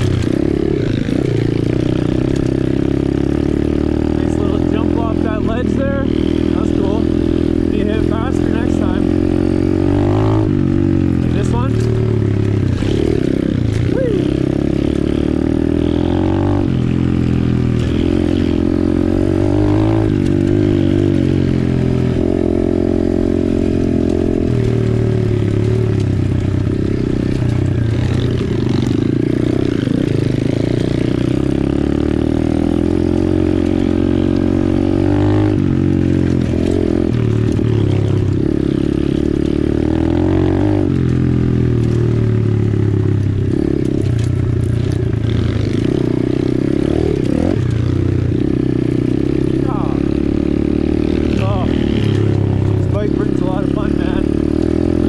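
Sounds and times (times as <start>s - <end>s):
motorbike engine revving: 0.0s - 55.0s.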